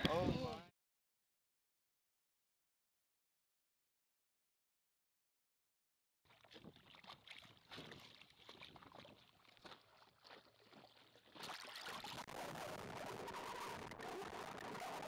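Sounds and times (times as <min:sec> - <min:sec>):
water sloshing and splashing: 0:06.3 - 0:12.4.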